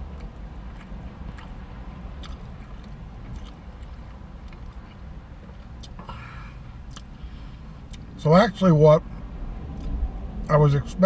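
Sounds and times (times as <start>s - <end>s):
faint eating clicks: 0.0s - 6.0s
man chewing food: 0.0s - 8.1s
low hum inside car: 0.0s - 11.0s.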